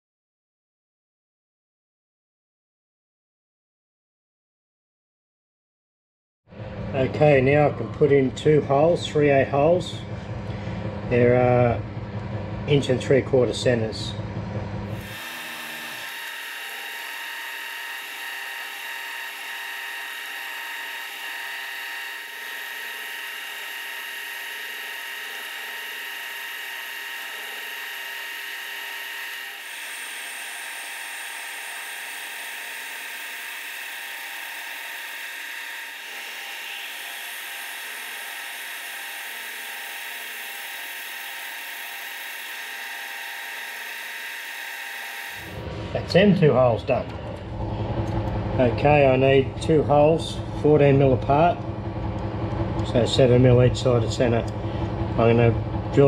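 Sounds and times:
milling machine spindle whining: 0:14.9 - 0:45.6.

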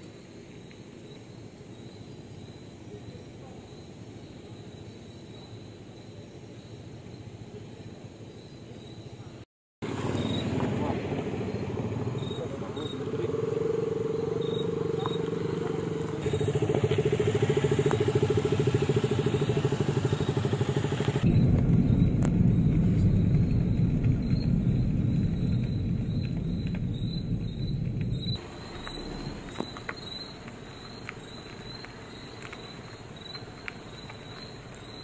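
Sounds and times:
insects chirping: 0:00.0 - 0:35.0
motorcycle engines running: 0:09.8 - 0:30.0.

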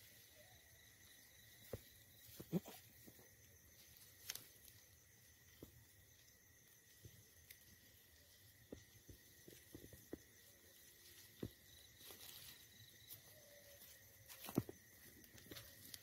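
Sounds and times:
dry leaves crackling: 0:11.9 - 0:16.0.

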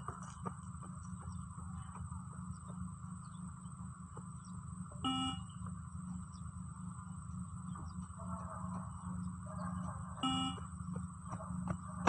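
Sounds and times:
steady low rumble: 0:00.0 - 0:12.0
short electronic beep: 0:05.1 - 0:05.6, 0:10.2 - 0:10.7.

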